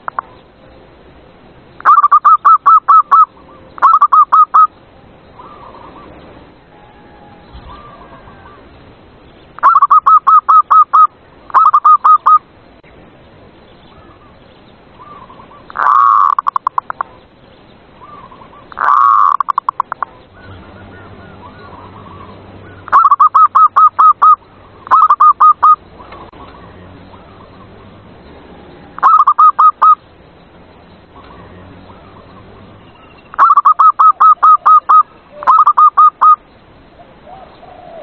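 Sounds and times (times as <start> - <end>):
dove cooing: 6.9 - 8.6, 15.0 - 17.2, 18.0 - 30.0, 31.2 - 36.4, 37.0 - 38.0.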